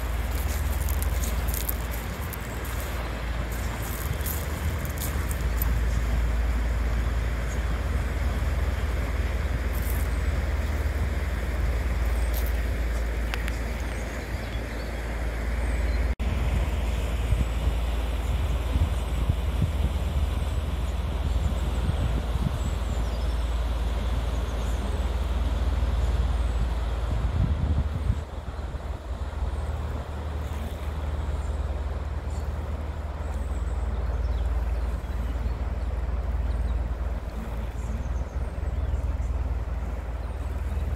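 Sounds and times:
ship engines droning: 0.0 - 40.9.

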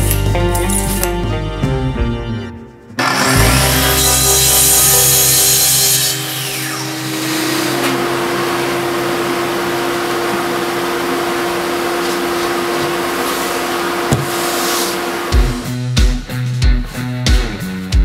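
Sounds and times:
saw blade whine spinning down: 3.0 - 14.1
dust extractor humming: 3.0 - 15.7
knock: 14.1 - 14.4.

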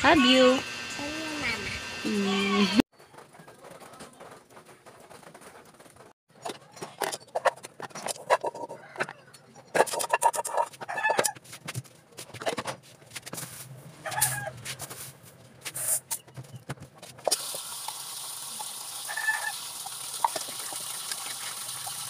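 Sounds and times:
hen clucking: 8.2 - 11.4.

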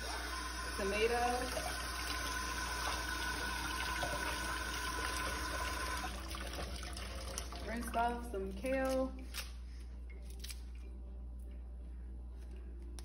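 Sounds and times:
tap water splashing into sink: 1.4 - 8.0.

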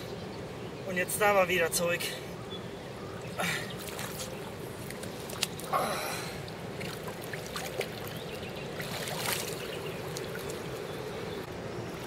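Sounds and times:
river water splashing and swirling: 2.9 - 12.0.

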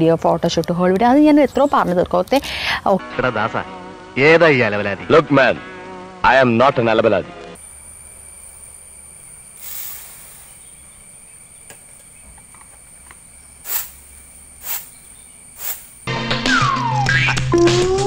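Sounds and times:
music: 2.8 - 7.6, 16.1 - 18.0
high insect drone: 7.6 - 17.1.

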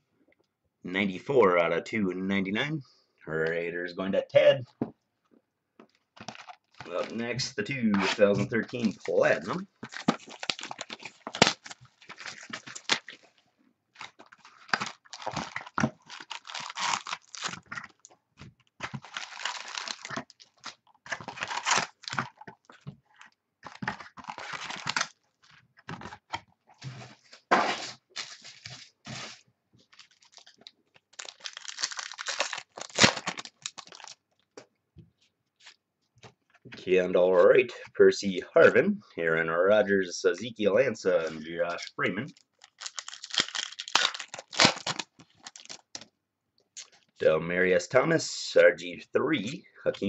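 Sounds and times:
wrappers tearing and crinkling: 6.2 - 7.3, 7.9 - 13.4, 14.0 - 18.1, 18.8 - 22.8, 23.6 - 25.2, 26.8 - 34.3, 42.4 - 46.0.

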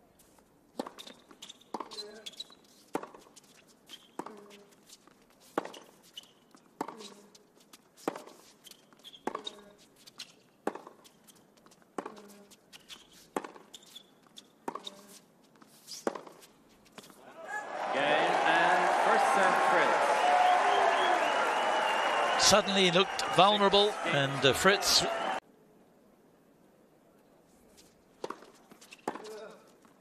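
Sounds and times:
tennis racquets hitting ball: 0.8 - 2.1, 2.9 - 3.3, 8.0 - 9.7, 10.6 - 11.0, 13.3 - 15.1, 15.8 - 17.2, 28.2 - 29.4.

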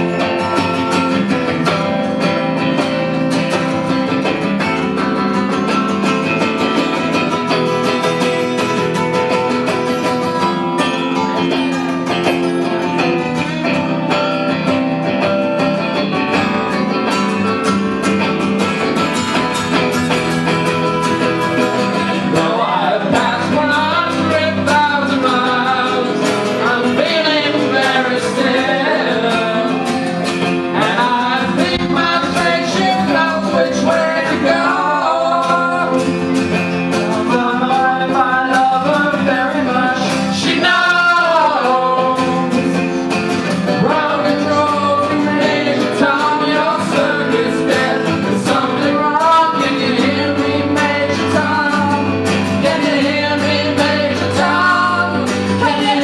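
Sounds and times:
bass guitar: 0.0 - 56.0
electric guitar: 0.0 - 56.0
strummed acoustic guitar: 0.0 - 56.0
person singing: 20.6 - 56.0.

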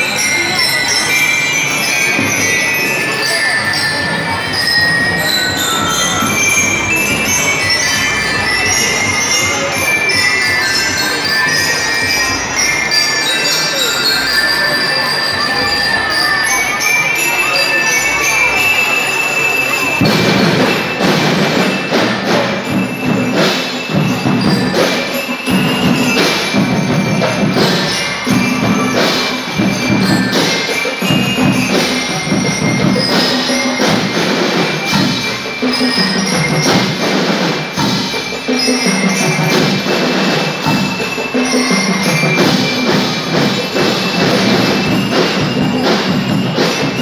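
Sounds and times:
bell lyres playing a tune: 0.0 - 47.0
marching drums beat: 20.0 - 47.0.

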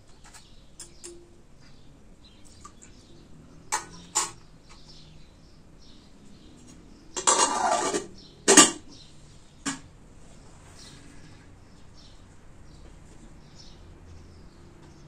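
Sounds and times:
metal lid clanking: 3.7 - 4.4, 7.2 - 8.9
plate clinking: 7.2 - 8.8
steel pot scraping: 7.2 - 8.8.

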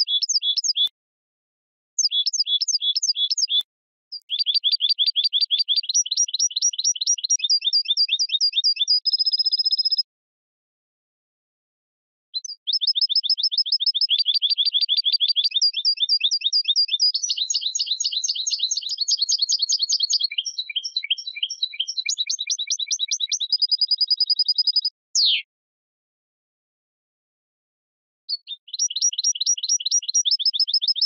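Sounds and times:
finch singing rapid twitters: 0.0 - 0.9, 2.0 - 10.0, 12.4 - 25.4, 28.3 - 31.0.

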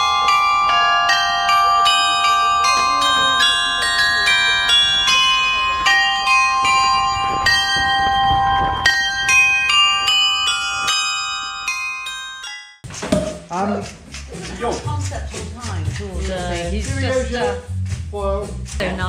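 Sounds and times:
chiming bell-like melody: 0.0 - 12.8.

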